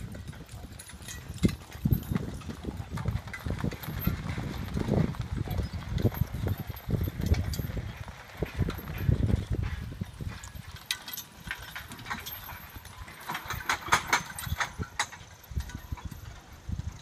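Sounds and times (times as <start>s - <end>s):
horse hoof steps: 0.0s - 17.0s
sharp clinks and knocks: 8.4s - 16.5s.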